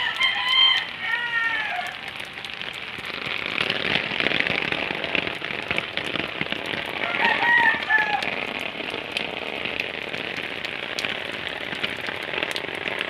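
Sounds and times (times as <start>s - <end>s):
rooster crowing: 0.0s - 2.1s, 7.0s - 8.3s
rain pattering on leaves: 0.0s - 13.0s.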